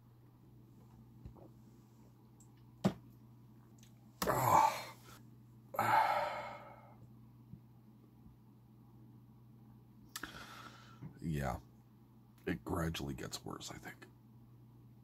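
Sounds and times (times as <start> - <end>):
man exhaling breathily: 5.8 - 7.0, 10.2 - 11.1.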